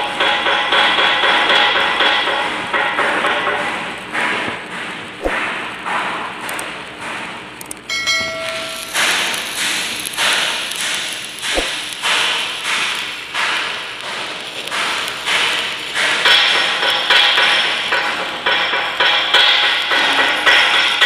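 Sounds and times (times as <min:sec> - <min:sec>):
short chime: 0:07.9 - 0:09.2.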